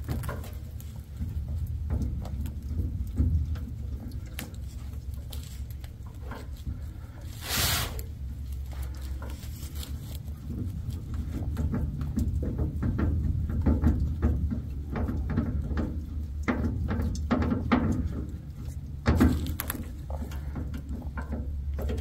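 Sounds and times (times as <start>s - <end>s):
rag rustling and squishing: 0.0s - 12.4s, 18.6s - 22.0s
oil pattering onto cardboard: 0.0s - 22.0s
oil splash: 0.6s - 11.4s.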